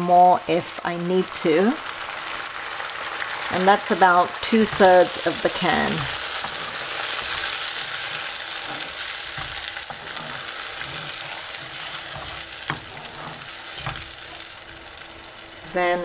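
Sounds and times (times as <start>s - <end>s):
onions and tomatoes sizzling in oil: 0.0s - 16.0s
spoon stirring knocks: 4.6s - 14.4s.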